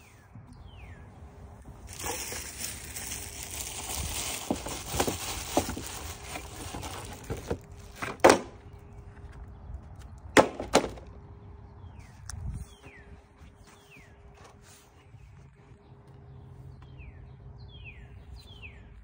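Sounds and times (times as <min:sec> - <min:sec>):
paper filter rustling: 0:01.8 - 0:08.5.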